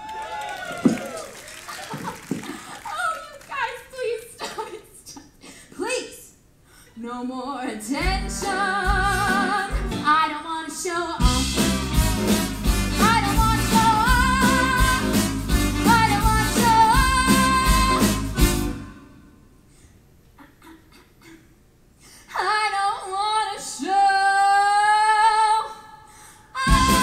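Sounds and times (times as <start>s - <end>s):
woman singing with vibrato: 7.0s - 11.9s, 12.9s - 19.4s, 22.3s - 27.0s
live band playing: 8.0s - 10.1s, 11.2s - 19.1s, 26.7s - 27.0s.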